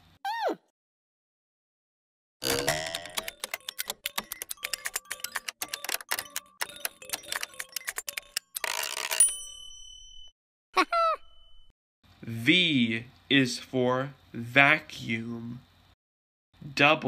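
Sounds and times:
slot machine reels clicking: 2.4 - 10.3
bell-like ring: 9.1 - 10.4.

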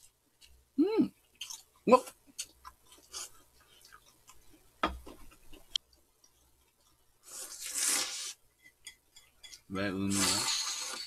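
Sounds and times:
mouth noises while eating: 0.0 - 8.4
slurping noodles: 7.2 - 8.4, 10.1 - 11.0.

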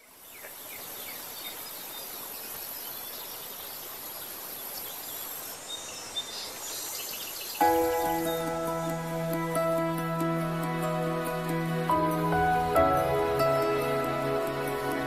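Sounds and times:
steady hiss: 0.0 - 15.0
music: 7.6 - 15.0.

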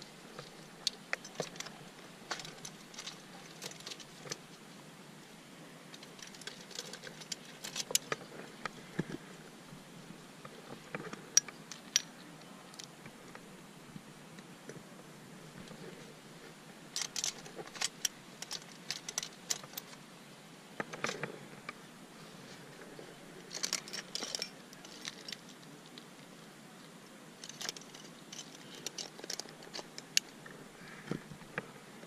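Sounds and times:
carabiners clinking: 0.4 - 4.4, 5.9 - 8.3, 17.0 - 20.0, 23.4 - 26.0, 27.4 - 30.3.

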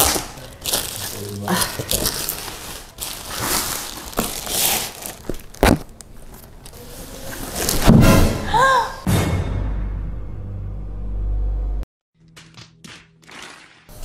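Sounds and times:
plastic bag crinkling and tearing: 0.0 - 6.5.

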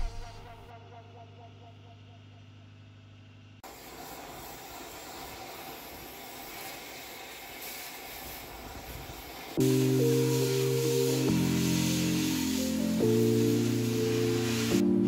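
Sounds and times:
cutting torch hissing: 3.6 - 15.0.

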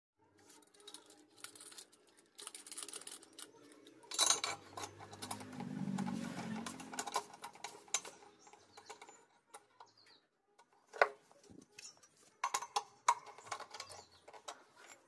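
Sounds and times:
metal clicks taps and scrapes: 0.5 - 15.0
metal clatter: 0.8 - 9.2
low hum: 4.7 - 7.7.

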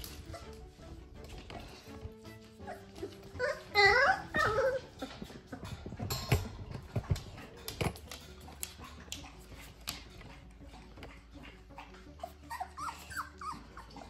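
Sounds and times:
puppy whining yelp: 0.0 - 0.8, 2.4 - 6.1, 11.4 - 14.0
puppies scuffling: 0.0 - 14.0.

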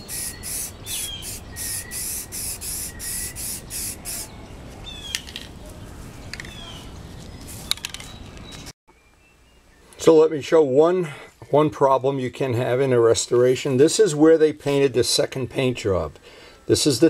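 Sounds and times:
aerosol can spraying in bursts: 0.0 - 4.3
bird chirps: 0.0 - 10.0.

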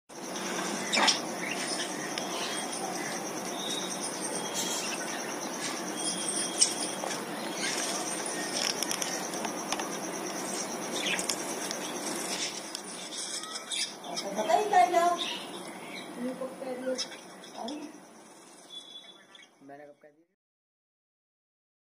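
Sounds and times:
wings fluttering: 0.2 - 15.1
bird chirps: 0.2 - 19.8.

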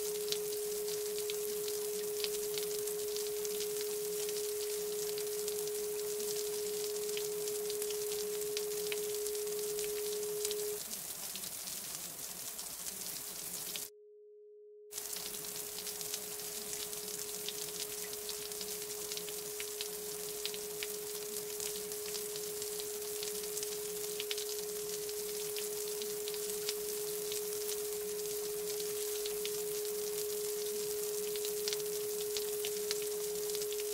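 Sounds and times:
steady pure tone: 0.0 - 10.8, 13.9 - 33.9
crackly hiss: 0.0 - 13.9, 15.0 - 33.9.

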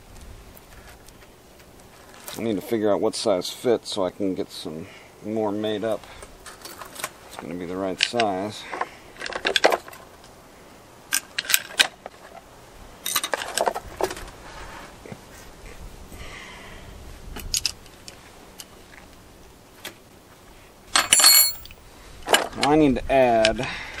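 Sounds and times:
steel chain clinking and rattling: 20.9 - 21.8.

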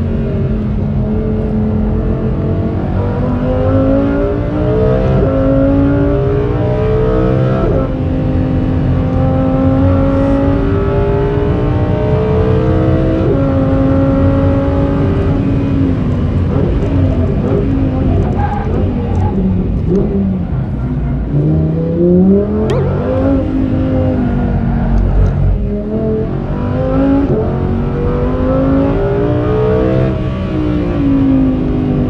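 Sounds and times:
sports car engine accelerating: 0.0 - 32.0.

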